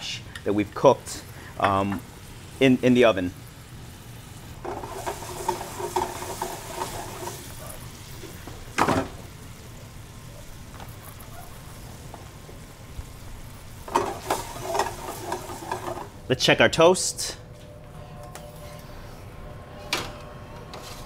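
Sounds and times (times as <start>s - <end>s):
mushrooms sizzling in skillet: 0.2s - 16.3s
pan scraping on burner grate: 4.6s - 9.2s, 13.8s - 16.2s, 18.2s - 21.0s.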